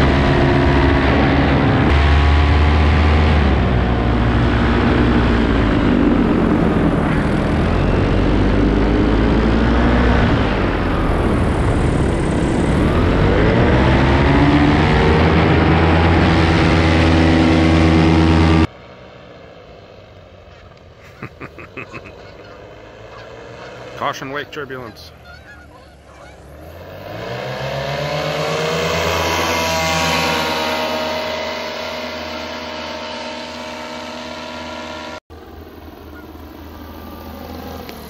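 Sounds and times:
paramotor engine and propeller: 0:00.0 - 0:38.0
goose honks: 0:21.8 - 0:26.5.

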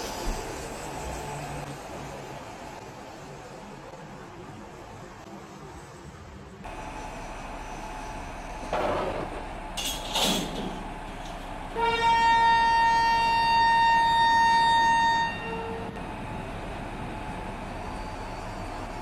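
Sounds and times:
locomotive horn blast: 0:11.7 - 0:16.0.

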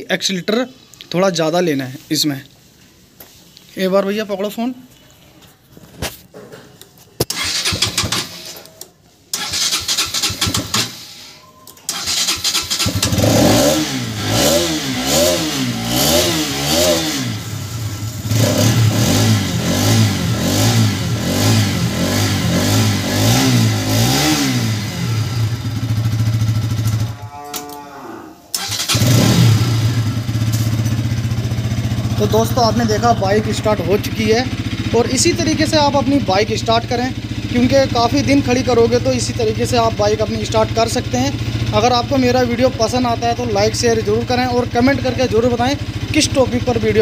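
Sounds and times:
electric starter cranking: 0:07.2 - 0:17.4, 0:28.5 - 0:31.3
motorcycle engine revving: 0:07.3 - 0:08.5, 0:09.3 - 0:11.2, 0:11.9 - 0:47.0
motorcycle engine idling: 0:15.7 - 0:27.2, 0:28.6 - 0:47.0.

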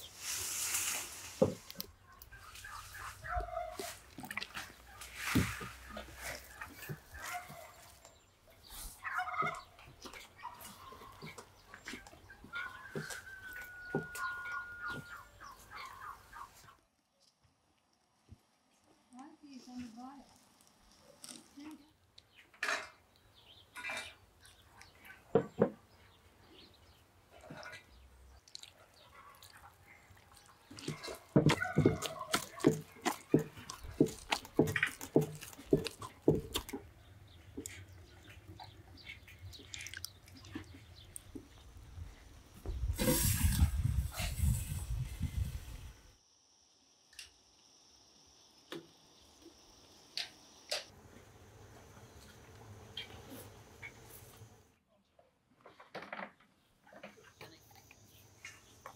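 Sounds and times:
wet squelches of kneaded dough: 0:01.6 - 0:08.9, 0:27.4 - 0:41.6.

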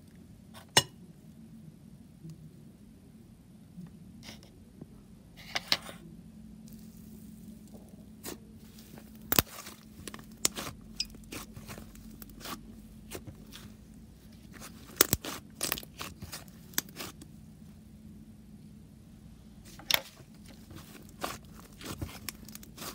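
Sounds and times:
faint low hum: 0:00.0 - 0:22.9
slime popping and tearing: 0:14.6 - 0:17.2.

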